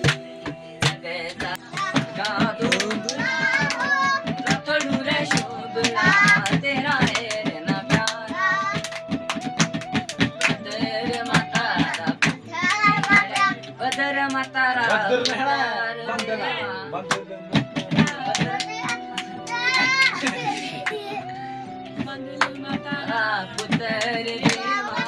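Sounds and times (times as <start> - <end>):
young men singing together: 0.0 - 4.0, 12.7 - 16.7, 23.2 - 25.0
beats on plastic jerrycan: 0.0 - 15.0, 17.1 - 21.0, 22.0 - 25.0
rhythmic hand claps: 0.0 - 15.6, 16.2 - 21.3, 22.0 - 25.0.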